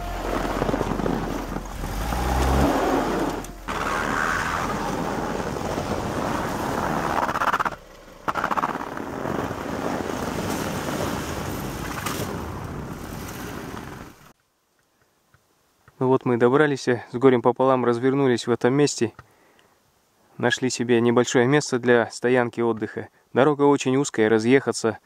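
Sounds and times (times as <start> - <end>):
car engine under load: 0.0 - 13.0
tyres churning through snow: 0.0 - 14.3.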